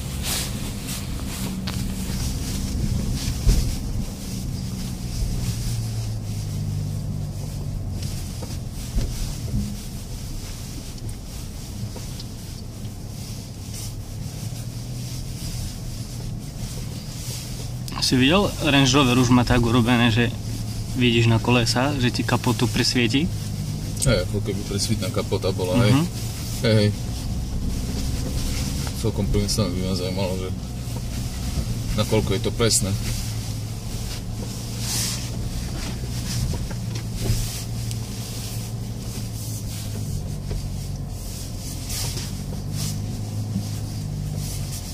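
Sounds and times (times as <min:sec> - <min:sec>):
suspension knocks: 0:00.0 - 0:06.0
low diesel engine hum: 0:00.0 - 0:44.9
tyre and road noise: 0:00.0 - 0:44.9.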